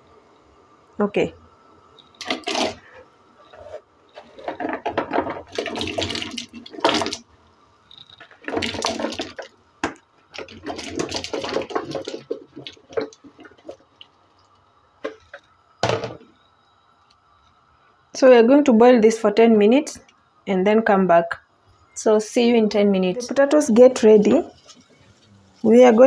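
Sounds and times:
potato pieces splashing into water: 8.4s - 13.8s.

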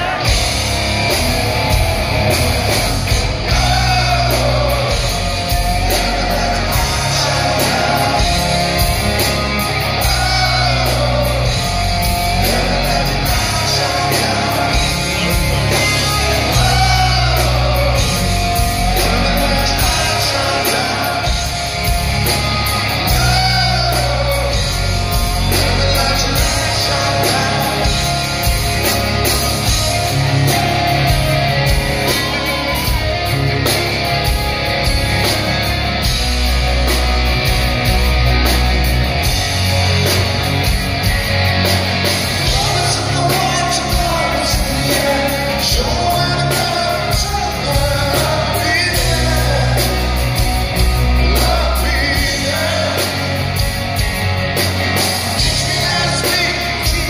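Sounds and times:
person singing lead vocal: 0.0s - 0.8s, 2.9s - 33.4s, 42.3s - 53.8s, 55.0s - 57.0s
drums: 0.0s - 57.0s
electric guitars: 0.0s - 57.0s
live rock band playing: 0.0s - 57.0s.

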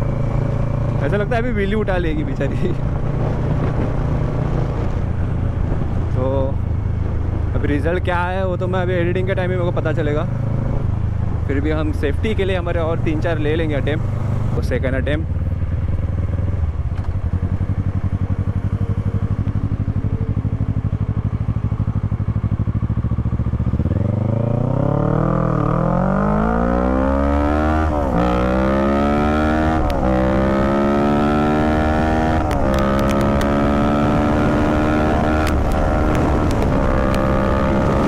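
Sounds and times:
motorcycle engine revving: 0.0s - 7.6s, 8.8s - 38.0s
motorcycle gear upshifts: 29.6s - 38.0s.

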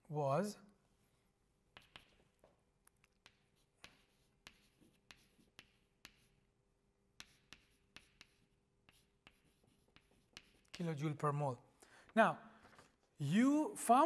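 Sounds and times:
chalk tapping and scratching on blackboard: 1.7s - 11.2s.

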